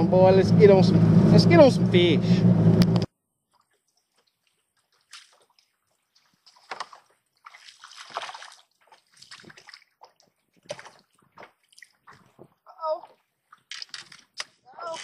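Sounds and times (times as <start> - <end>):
water lapping against boat hull: 3.4 - 15.0.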